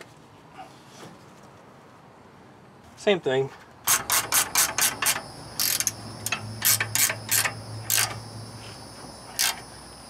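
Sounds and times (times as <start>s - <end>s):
ratchet wrench clicking: 3.9s - 8.2s, 9.3s - 9.7s.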